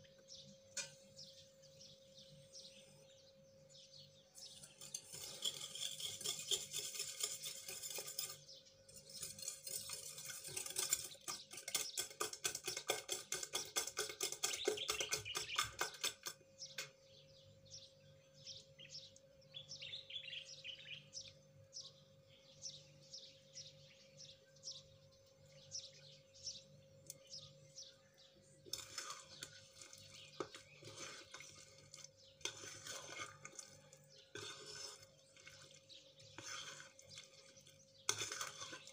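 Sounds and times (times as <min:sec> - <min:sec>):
spoon scraping ceramic bowl: 0:04.4 - 0:16.4, 0:28.6 - 0:38.9
whisk clicking against glass bowl: 0:09.0 - 0:16.4.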